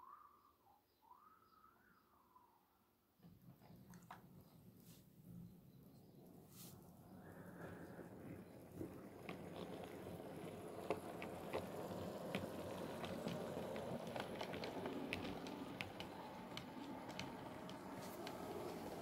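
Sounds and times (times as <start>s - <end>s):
model train running whir: 7.3s - 19.0s
wheels clicking over rail joints: 7.6s - 19.0s.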